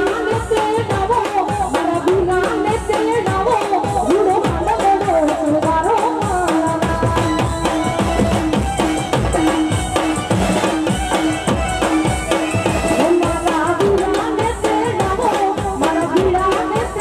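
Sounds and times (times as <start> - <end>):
fast drum beat: 0.0 - 17.0
keyboard melody: 6.8 - 14.2.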